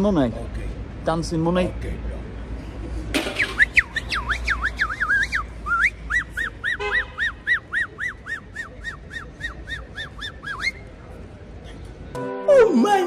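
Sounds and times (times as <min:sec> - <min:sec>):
person whistling: 0:03.4 - 0:10.8.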